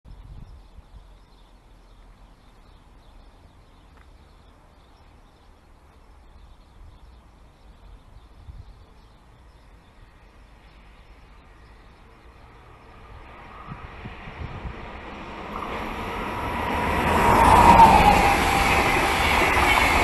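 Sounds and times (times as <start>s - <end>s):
wind buffeting microphone: 0.1s - 1.2s, 7.9s - 9.0s, 12.9s - 20.0s.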